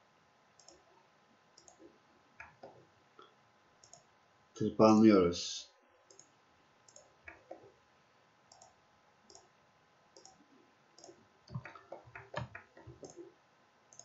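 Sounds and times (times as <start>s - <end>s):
computer mouse clicking: 0.6s - 0.9s, 1.6s - 2.8s, 3.8s - 4.1s, 6.1s - 6.3s, 6.9s - 7.7s, 8.5s - 9.5s, 10.2s - 10.4s, 11.0s - 13.3s.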